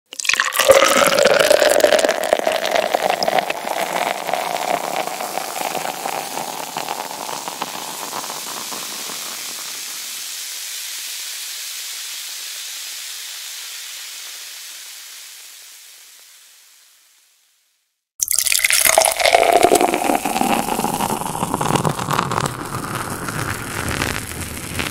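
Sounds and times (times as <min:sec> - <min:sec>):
beer pouring into glass: 0:00.1 - 0:09.6, 0:18.2 - 0:24.9
foam fizzing: 0:00.2 - 0:16.8, 0:18.2 - 0:24.9.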